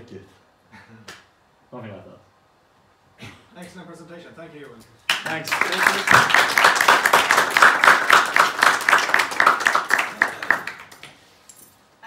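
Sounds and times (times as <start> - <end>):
audience applause: 5.1 - 11.1.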